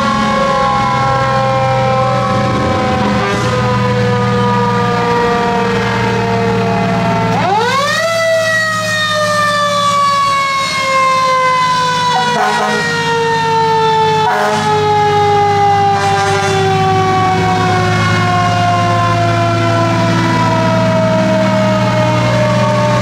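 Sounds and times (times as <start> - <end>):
fire engine siren wailing: 0.0 - 23.0
truck engine drone: 0.0 - 23.0.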